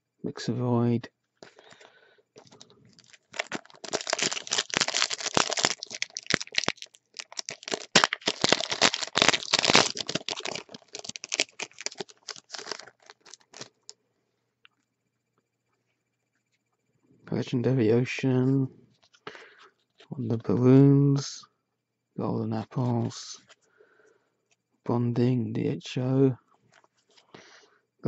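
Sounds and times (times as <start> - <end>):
foil wrapper crinkling and tearing: 2.4 - 13.9.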